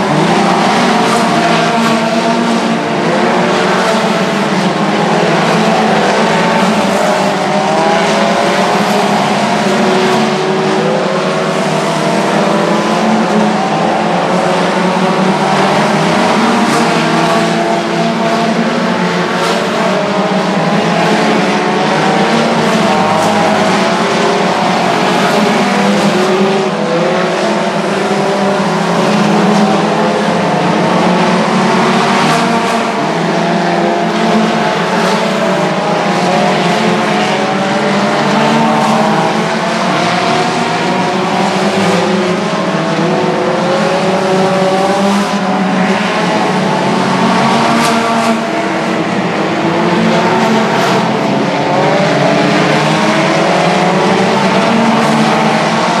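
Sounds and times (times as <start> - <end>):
race car engines: 0.0 - 56.0.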